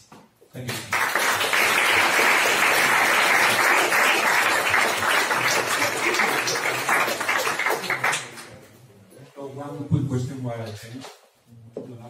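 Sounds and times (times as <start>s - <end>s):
audience applauding: 0.7s - 8.6s.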